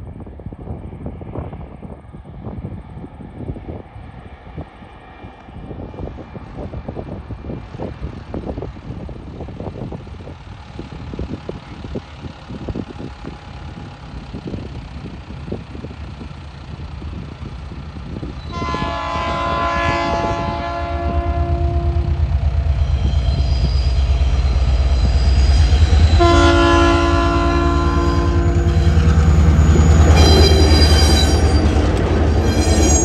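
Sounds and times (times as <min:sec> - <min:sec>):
train approaching with low rumble: 0:00.0 - 0:33.0
wind buffeting: 0:00.0 - 0:33.0
locomotive air horn chord: 0:18.5 - 0:22.2, 0:26.0 - 0:28.8.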